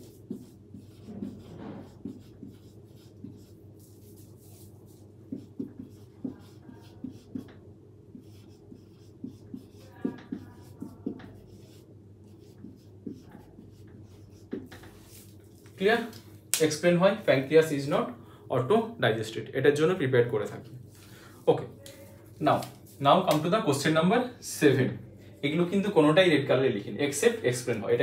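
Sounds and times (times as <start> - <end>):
marker pen writing on whiteboard: 0.0 - 16.1.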